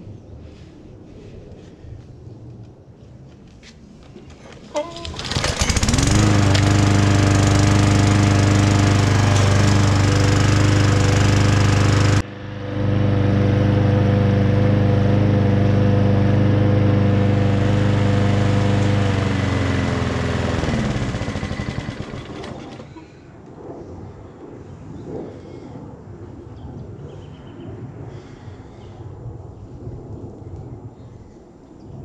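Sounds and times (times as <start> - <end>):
lawn mower engine running: 4.8 - 23.0.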